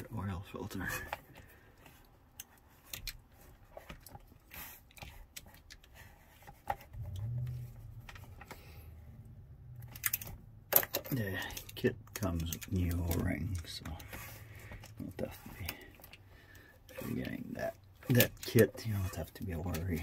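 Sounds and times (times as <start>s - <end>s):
low hum: 6.9s - 12.6s.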